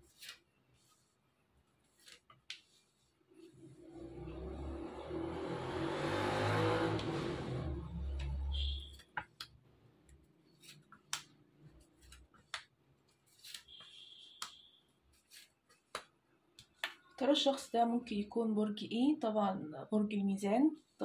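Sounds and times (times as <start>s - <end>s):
cards clicking and tapping on table: 9.0s - 9.6s, 10.7s - 11.4s, 12.0s - 12.8s, 15.7s - 17.1s.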